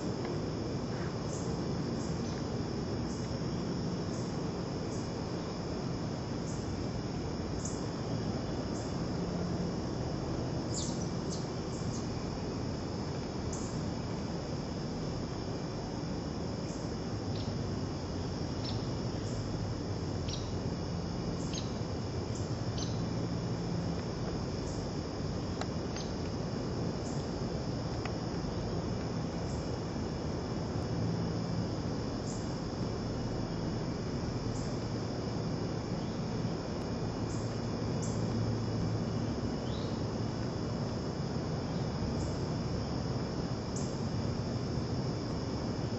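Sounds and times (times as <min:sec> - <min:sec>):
crickets chirping: 0:00.0 - 0:45.9
low background hiss: 0:00.0 - 0:45.9.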